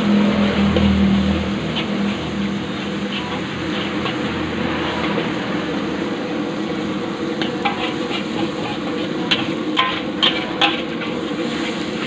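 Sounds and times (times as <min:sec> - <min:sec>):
food sizzling in a wok: 0:00.0 - 0:12.0
metal spatula scraping: 0:00.2 - 0:05.4, 0:07.4 - 0:12.0.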